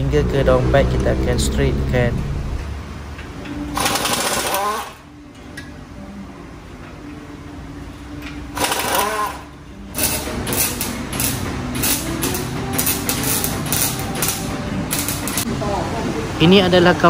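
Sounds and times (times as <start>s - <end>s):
impact wrench burst: 3.7s - 5.0s, 8.5s - 15.4s
welding crackle: 10.0s - 15.5s.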